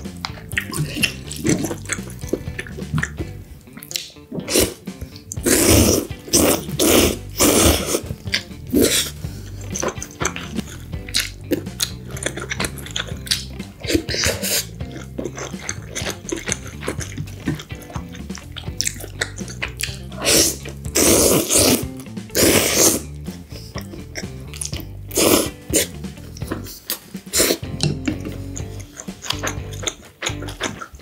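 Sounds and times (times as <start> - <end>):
wet chewing and mouth clicks: 0.0 - 31.0
loud slurps of noodles: 5.4 - 8.1, 20.2 - 23.1, 25.1 - 25.9.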